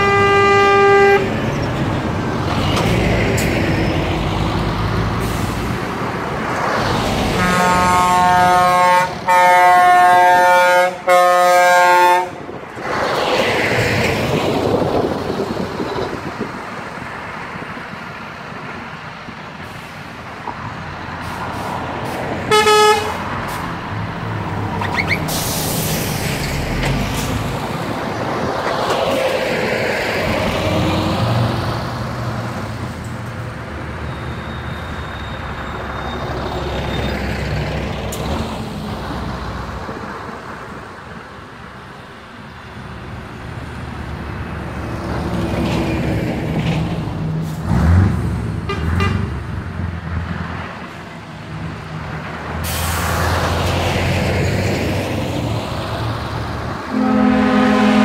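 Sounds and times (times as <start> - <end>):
truck horn chord: 0.0 - 1.3, 7.4 - 12.4, 22.5 - 23.2, 56.9 - 58.0
trucks driving past: 0.0 - 58.0.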